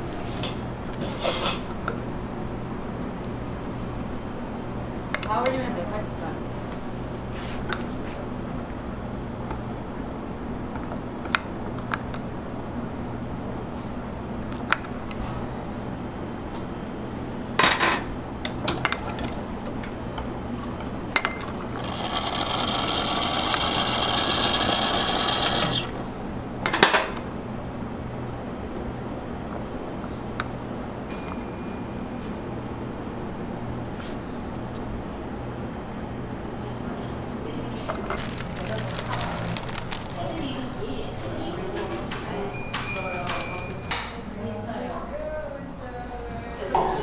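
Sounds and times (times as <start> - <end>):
steady background hum: 0.0 - 47.0
small machine whirring: 21.6 - 26.1.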